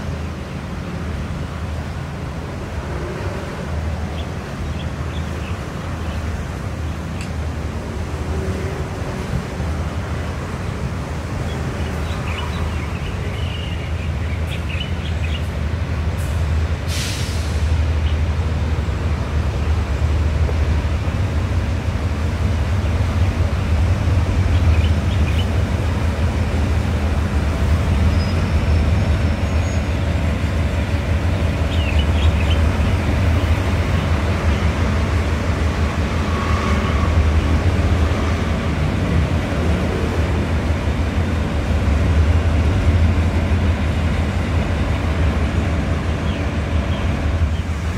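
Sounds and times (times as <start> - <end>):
air hiss: 16.3 - 17.8.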